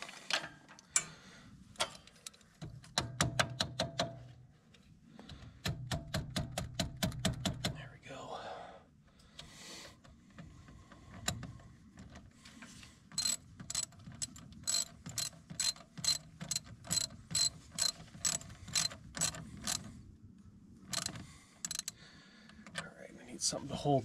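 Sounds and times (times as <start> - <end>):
ratchet wrench clicking: 13.2 - 19.9, 20.9 - 22.0.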